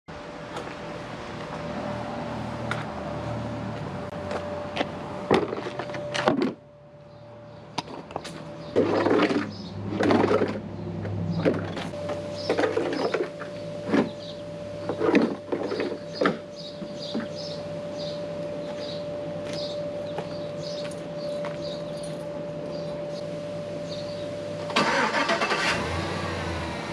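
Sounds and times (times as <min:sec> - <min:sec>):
plastic ramps clattering on asphalt: 0:05.3 - 0:06.6, 0:07.8 - 0:17.4.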